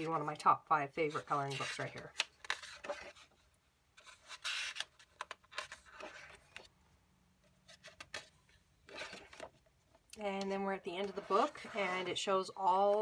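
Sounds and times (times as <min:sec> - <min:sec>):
paper pages rustling: 0:01.1 - 0:03.4, 0:04.0 - 0:06.7, 0:07.5 - 0:09.7.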